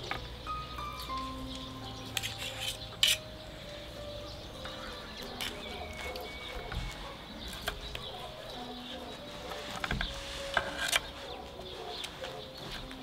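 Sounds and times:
birds chirping: 0.0 - 13.0
farm animals calling: 3.6 - 13.0.

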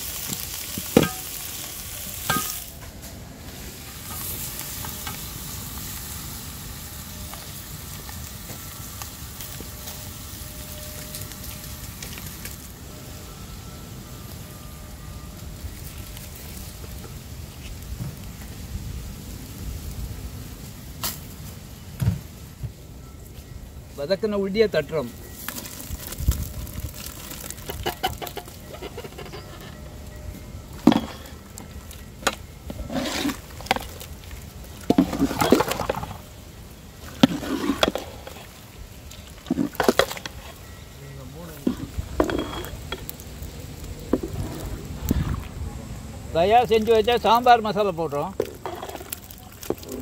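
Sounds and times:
onions sizzling in hot oil: 0.0 - 22.7, 24.4 - 30.1, 30.7 - 50.0
metal pan scraping clatter: 0.9 - 1.4, 27.5 - 29.9, 30.8 - 31.4, 32.7 - 34.0, 34.9 - 36.2, 37.1 - 38.5, 41.6 - 43.1, 48.4 - 49.2.

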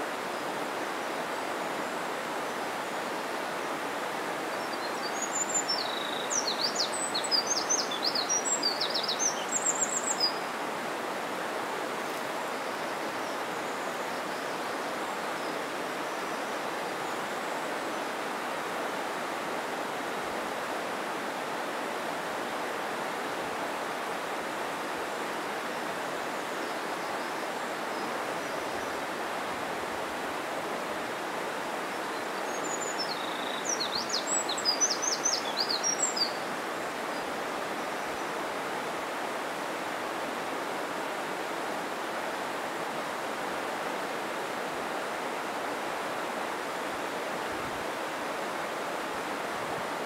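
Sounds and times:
stream rushing: 0.0 - 50.0
small bird singing: 4.6 - 10.4, 32.1 - 36.5.

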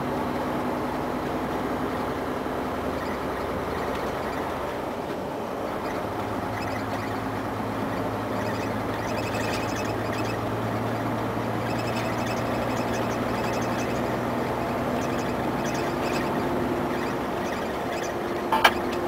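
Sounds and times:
truck diesel engine drone: 0.0 - 19.0
faint high-pitched squeaks: 5.8 - 19.0.

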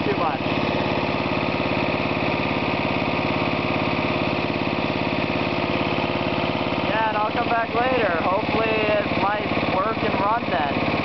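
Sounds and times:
lawn tractor engine running: 0.0 - 11.0.

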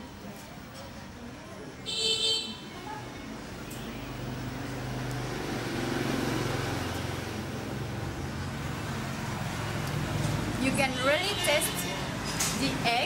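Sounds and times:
road noise hiss: 3.2 - 13.0.

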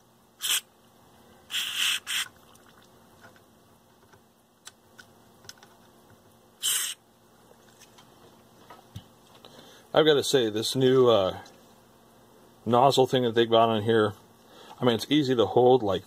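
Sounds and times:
aerosol spray hissing: 0.4 - 0.6, 1.5 - 2.3, 6.6 - 7.0.

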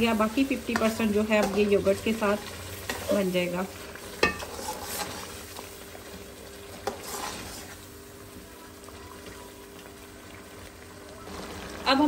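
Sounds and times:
food sizzling in a pan: 0.0 - 12.0
metal spoon scraping a pan: 0.4 - 2.0, 4.0 - 5.7, 6.7 - 7.8.

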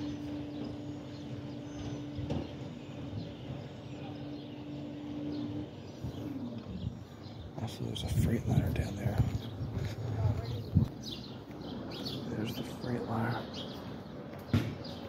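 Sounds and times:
machine hum: 0.0 - 15.0.

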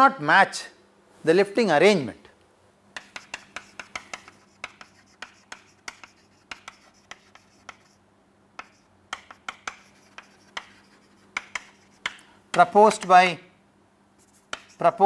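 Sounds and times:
chalk tapping and scratching: 3.0 - 8.0, 8.6 - 13.1, 14.2 - 15.0.

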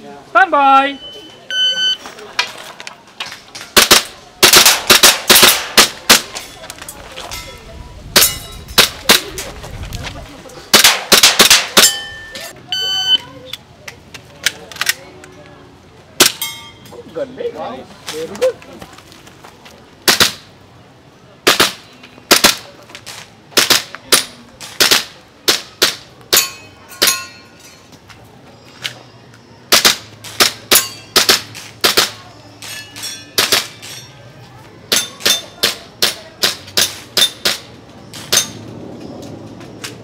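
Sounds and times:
pistol shots: 3.8 - 6.3, 10.7 - 12.0.

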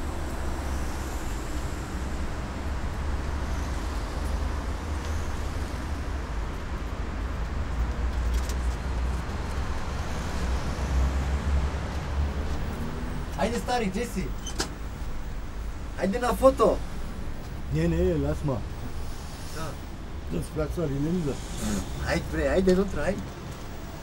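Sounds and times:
cars and van driving past: 0.0 - 24.0.

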